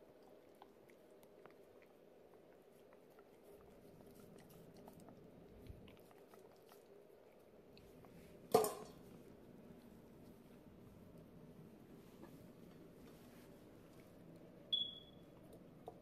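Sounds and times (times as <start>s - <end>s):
dog chewing raw chicken: 0.0s - 8.5s.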